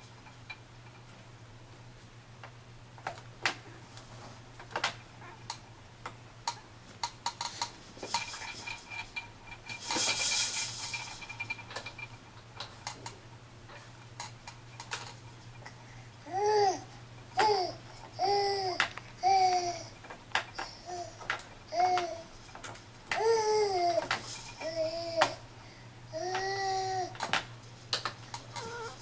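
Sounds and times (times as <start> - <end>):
plastic toy clicks and rattles: 6.5 - 15.7, 17.4 - 25.4, 26.2 - 28.9.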